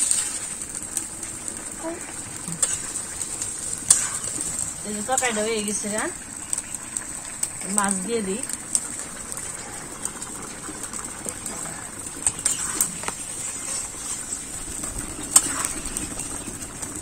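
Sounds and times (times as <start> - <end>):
spatula scraping a pan: 0.0 - 0.6, 2.5 - 5.5, 12.3 - 14.6, 15.3 - 15.9.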